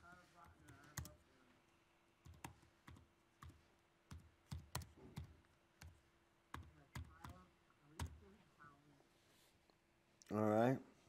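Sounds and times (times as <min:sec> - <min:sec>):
laptop keyboard typing: 0:00.4 - 0:01.2, 0:02.2 - 0:08.2.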